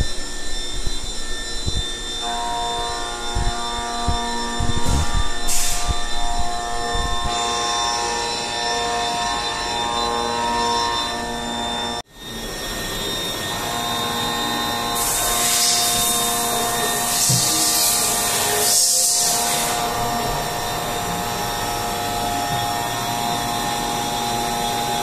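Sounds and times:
loud high hiss: 0.0s - 25.0s
machining center whine: 0.0s - 25.0s.

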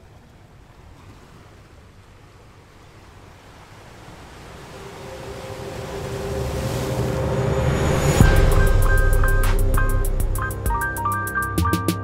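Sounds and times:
sea-like noise: 0.0s - 11.6s
music tones: 4.6s - 12.0s.

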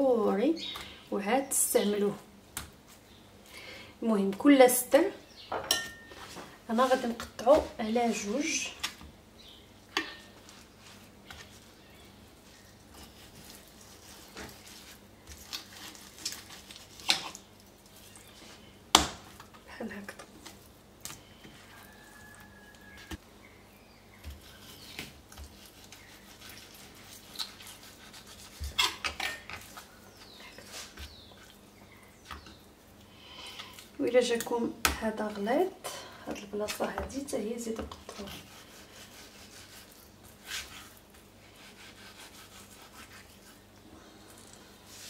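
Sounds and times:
soft handling of meat: 9.8s - 28.7s, 36.3s - 45.0s.

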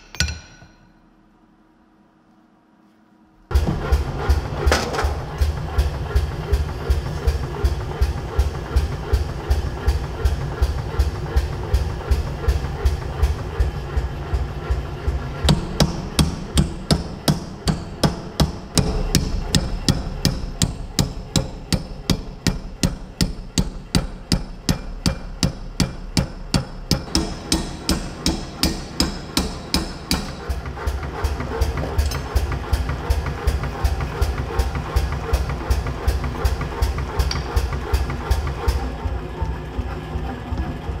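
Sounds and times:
power hammer blows on steel: 15.3s - 31.4s.

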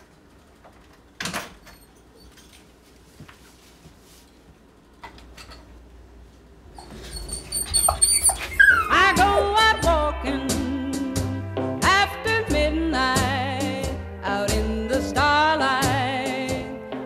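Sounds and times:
dog whining: 6.8s - 10.0s
music: 8.9s - 17.0s.

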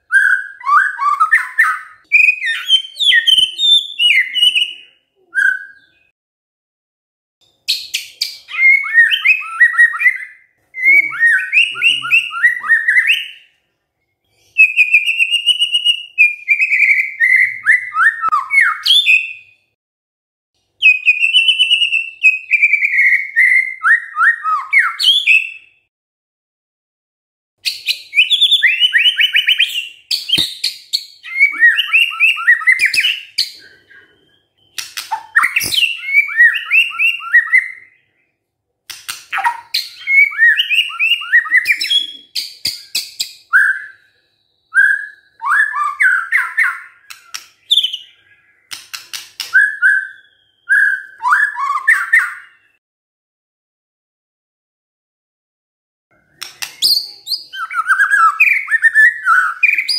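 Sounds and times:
bird singing whistles and trills: 0.0s - 6.1s, 7.6s - 13.6s, 14.3s - 19.7s, 20.8s - 25.8s, 27.6s - 38.3s, 39.3s - 52.8s, 56.2s - 59.9s.

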